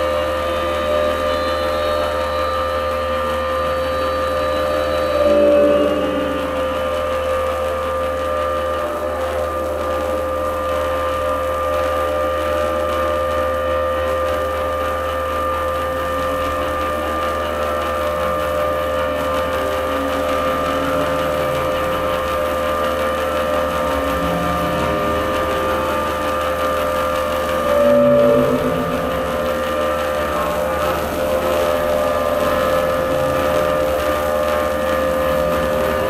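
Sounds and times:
electronic drone music: 0:00.0 - 0:36.0
low rumble: 0:05.2 - 0:08.3, 0:19.2 - 0:35.9.

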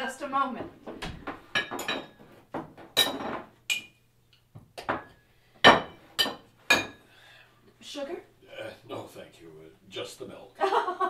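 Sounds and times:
glassware and crockery clinking: 0:01.5 - 0:02.2, 0:03.0 - 0:04.0, 0:04.9 - 0:07.0.

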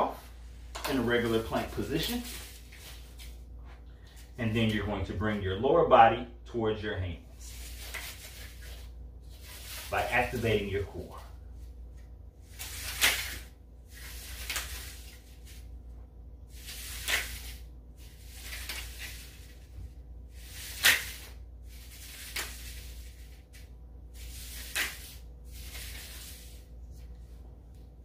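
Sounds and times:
exercise sliders swishing: 0:20.3 - 0:27.2.

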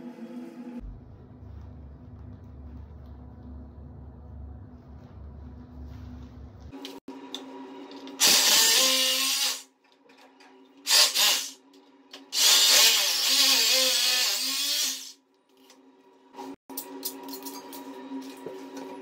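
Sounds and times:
hammer drill boring into tile: 0:08.2 - 0:09.7, 0:10.9 - 0:11.6, 0:12.3 - 0:15.2.

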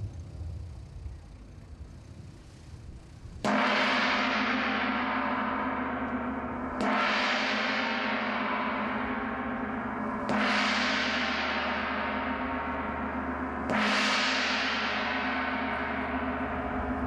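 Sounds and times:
gong struck and ringing: 0:03.4 - 0:17.0.

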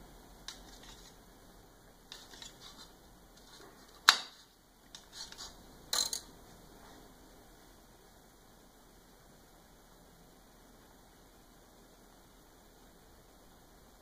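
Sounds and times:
knife clattering on counter: 0:06.0 - 0:06.3.

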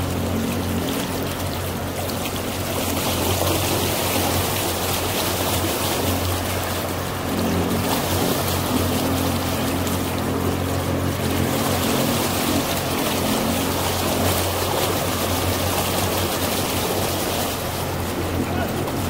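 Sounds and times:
boat engine drone: 0:00.0 - 0:19.0
water rushing along hull: 0:00.0 - 0:19.0.

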